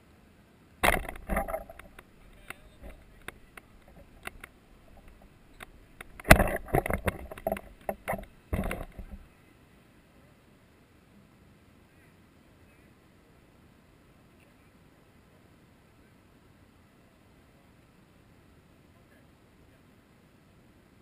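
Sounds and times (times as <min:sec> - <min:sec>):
clicks: 0:00.8 - 0:09.2
camera handling rubbing and knocks: 0:00.8 - 0:09.3.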